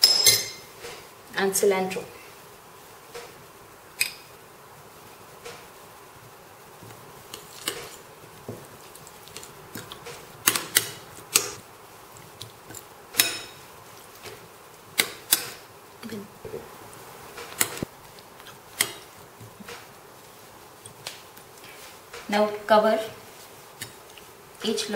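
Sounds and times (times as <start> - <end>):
metal spoon clinking against bowls: 0.0 - 0.7.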